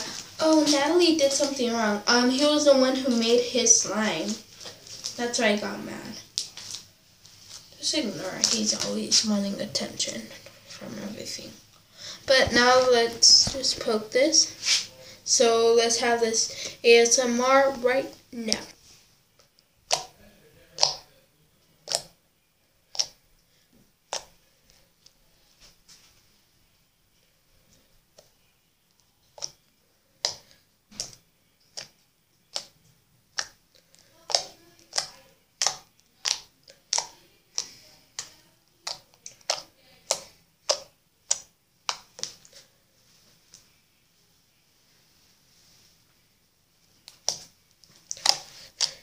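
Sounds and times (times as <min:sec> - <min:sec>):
fingertips popping slime: 0:19.8 - 0:21.1, 0:21.8 - 0:22.2, 0:22.9 - 0:23.2, 0:24.1 - 0:24.4, 0:29.2 - 0:42.6, 0:47.0 - 0:49.0.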